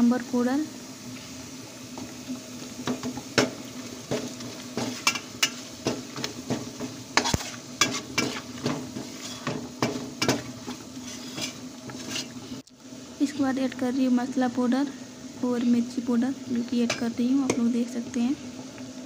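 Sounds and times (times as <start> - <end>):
oil sizzling: 0.0 - 19.0
spoon scraping and clinking on pan: 4.8 - 12.4.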